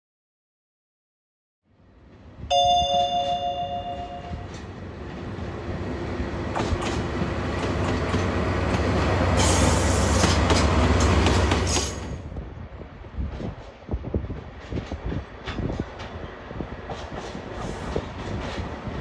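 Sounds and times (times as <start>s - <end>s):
loud hiss: 9.4s - 10.4s.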